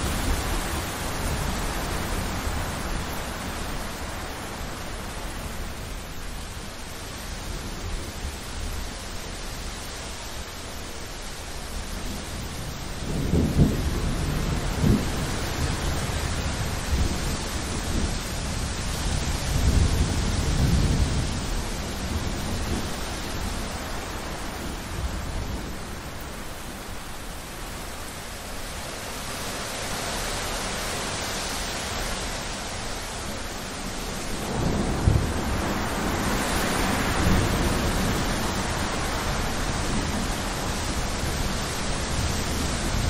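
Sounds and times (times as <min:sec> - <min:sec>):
steady rain: 0:00.0 - 0:43.0
rolling thunder: 0:13.0 - 0:26.1, 0:34.3 - 0:43.0.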